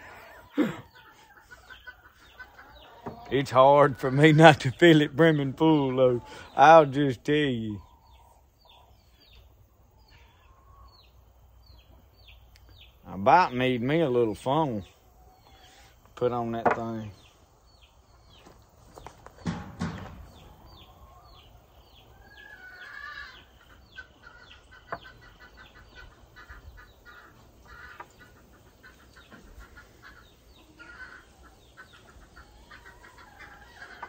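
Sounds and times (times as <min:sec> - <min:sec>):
chickens clucking: 0:00.0 - 0:34.0
knock: 0:19.4 - 0:20.3.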